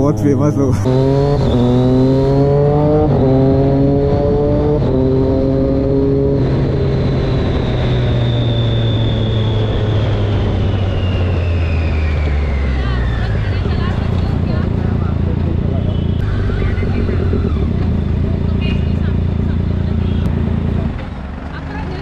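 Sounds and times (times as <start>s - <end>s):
motorcycle engine accelerating: 0.0s - 22.0s.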